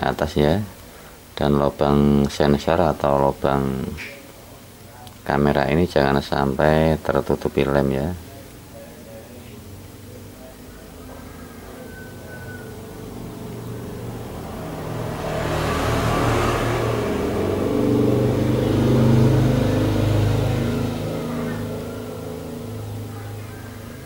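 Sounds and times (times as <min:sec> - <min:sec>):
vehicle engine passing by: 0:09.5 - 0:24.0.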